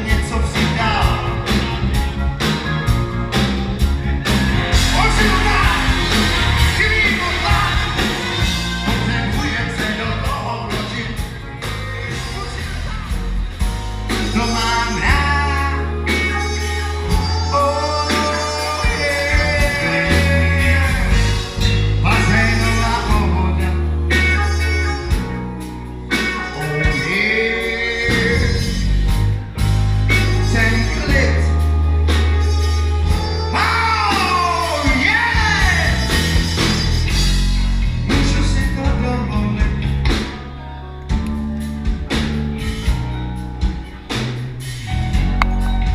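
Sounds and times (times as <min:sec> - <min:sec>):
heavy bass line: 0:00.0 - 0:45.9
live rock band playing: 0:00.0 - 0:45.9
person singing: 0:04.8 - 0:13.4, 0:14.1 - 0:25.3, 0:26.1 - 0:29.0, 0:30.1 - 0:37.0.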